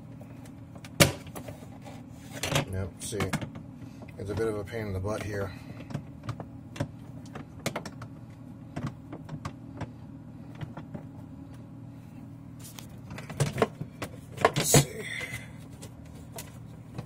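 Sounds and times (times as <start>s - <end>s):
steady low hum: 0.0s - 17.0s
plastic clicks and knocks: 5.2s - 8.1s.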